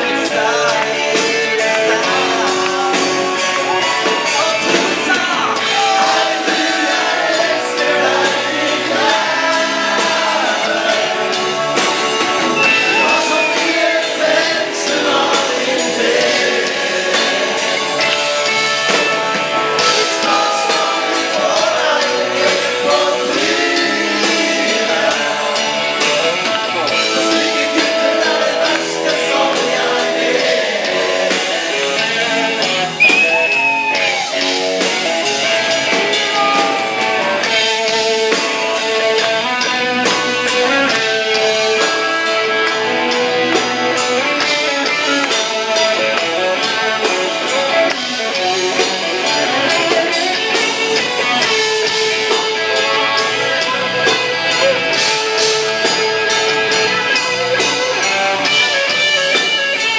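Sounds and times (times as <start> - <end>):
person singing: 0.0 - 11.5, 12.6 - 18.6, 35.8 - 42.8
electric guitars: 0.0 - 59.9
drum beat: 22.5 - 53.5.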